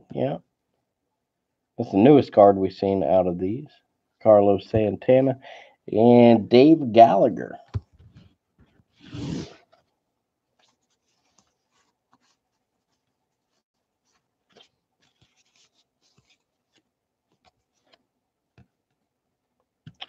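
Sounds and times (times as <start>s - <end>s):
paper cards rustling: 9.0s - 18.8s.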